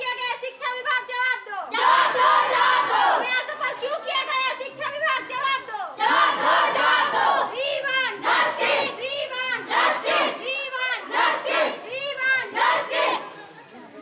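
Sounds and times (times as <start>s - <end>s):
crowd chanting a slogan: 1.7s - 4.1s, 5.7s - 13.4s.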